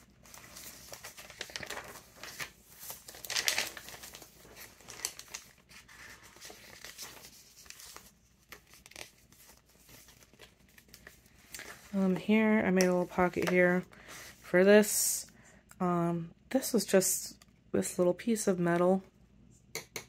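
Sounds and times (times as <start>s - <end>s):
paper pages rustling: 0.1s - 14.5s.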